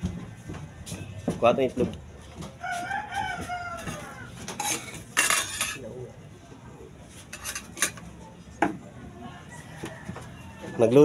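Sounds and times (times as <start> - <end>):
cookware clinks and knocks: 3.8 - 5.8, 7.3 - 8.1.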